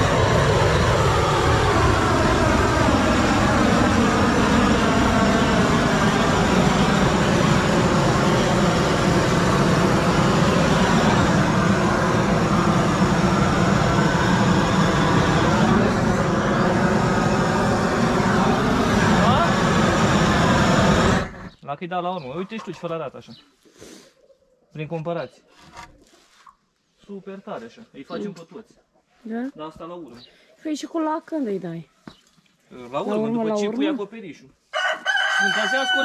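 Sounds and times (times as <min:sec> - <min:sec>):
gas torch flame rushing: 0:00.0 - 0:21.6.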